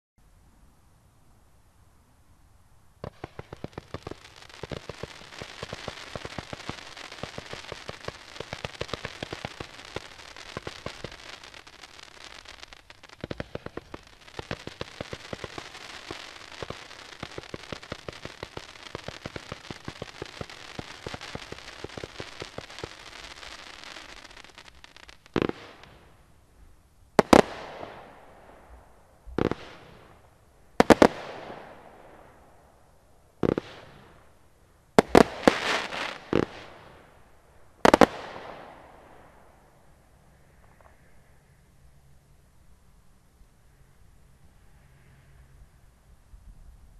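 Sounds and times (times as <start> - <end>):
loud firework bangs: 3.0 - 24.6, 35.0 - 37.0
firework crackle of small pops: 3.0 - 26.5, 27.1 - 41.6.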